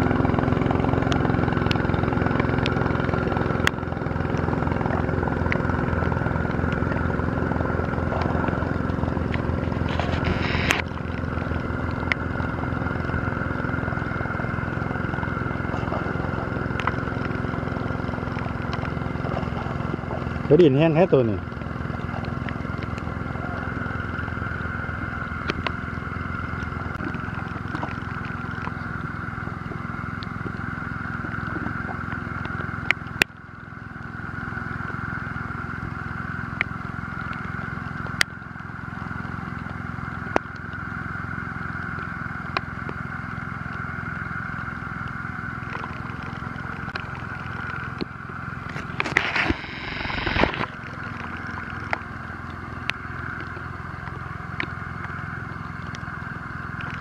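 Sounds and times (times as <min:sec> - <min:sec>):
rush of noise: 0:00.0 - 0:29.4, 0:45.6 - 0:52.2
motor droning: 0:00.0 - 0:57.0.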